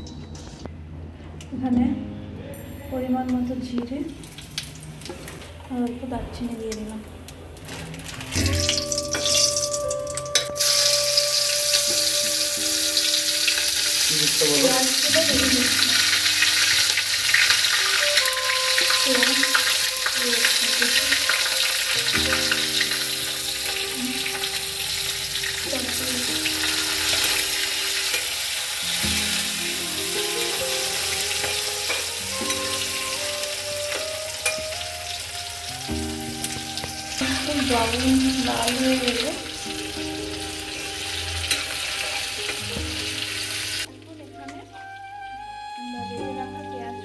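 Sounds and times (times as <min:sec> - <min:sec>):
hot oil sizzling: 0:04.1 - 0:43.9
spatula stirring and scraping: 0:31.3 - 0:32.2.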